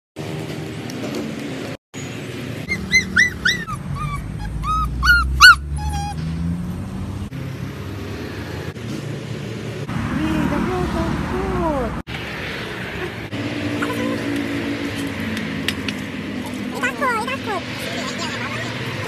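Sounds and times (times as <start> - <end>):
puppy yelping and whimpering: 2.7 - 6.2.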